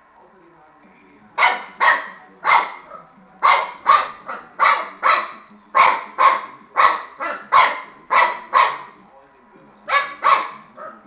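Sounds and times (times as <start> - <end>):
puppy barking: 1.4 - 9.0, 9.9 - 11.0.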